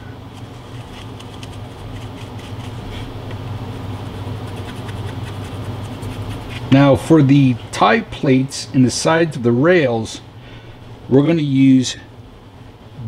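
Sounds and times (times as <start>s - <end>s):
furnace humming: 0.0s - 13.0s
paintbrush scrubbing on paper towel: 0.4s - 6.8s.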